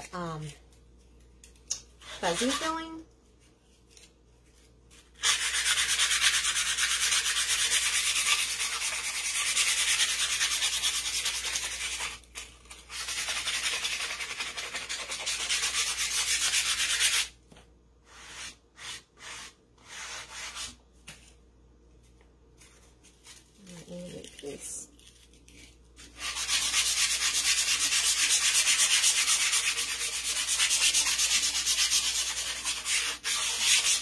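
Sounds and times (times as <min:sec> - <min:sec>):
sandpaper rubbing on wood: 0:05.2 - 0:12.2, 0:12.9 - 0:17.3, 0:26.2 - 0:34.0.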